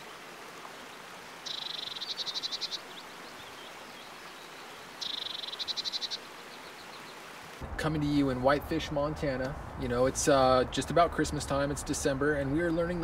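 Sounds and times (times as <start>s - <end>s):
creek rushing: 0.0s - 13.0s
small bird trilling song: 1.4s - 7.2s.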